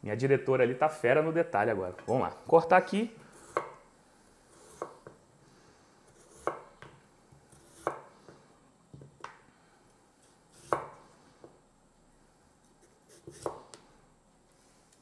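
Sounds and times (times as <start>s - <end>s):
knife slicing potato: 3.3s - 3.9s, 4.5s - 5.1s, 6.1s - 6.8s, 7.5s - 8.1s, 10.2s - 11.0s, 12.8s - 13.8s.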